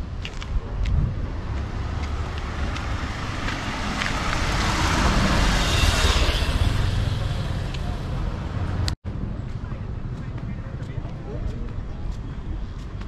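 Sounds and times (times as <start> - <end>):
low traffic rumble: 0.0 - 13.0
vehicle passing close by: 1.4 - 9.0.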